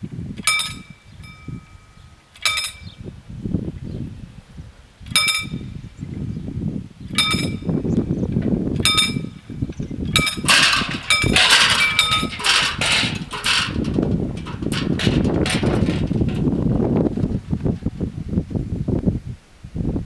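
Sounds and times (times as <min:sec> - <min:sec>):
wind rumbling on microphone: 0:00.0 - 0:20.0
level-crossing warning bell: 0:00.4 - 0:03.0, 0:05.2 - 0:05.7, 0:07.2 - 0:07.7, 0:10.2 - 0:12.6.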